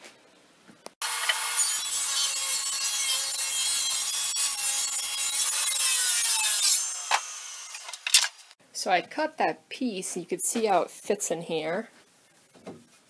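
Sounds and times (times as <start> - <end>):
table saw cutting wood: 1.0 - 8.6.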